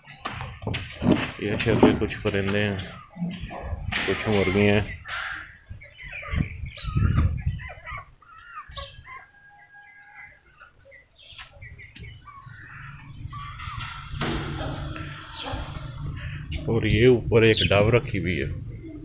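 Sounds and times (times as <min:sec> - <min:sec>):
hens clucking: 0:00.0 - 0:19.0.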